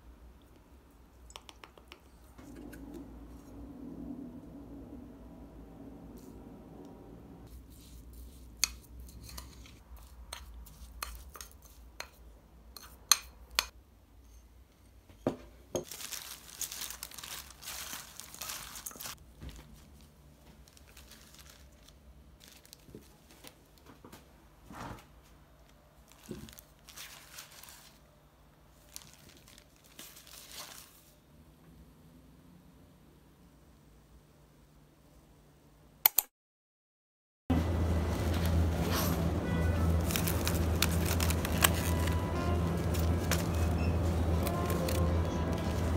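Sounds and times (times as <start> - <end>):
plastic glove crinkling: 15.8 - 23.9, 25.6 - 28.1, 28.7 - 31.2, 37.7 - 45.9.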